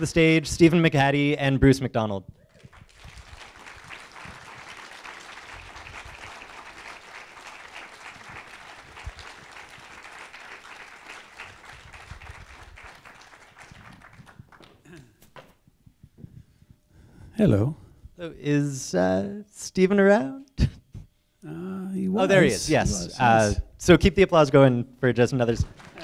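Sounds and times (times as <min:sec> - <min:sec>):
audience applauding: 0:02.5 - 0:15.0, 0:25.6 - 0:26.0.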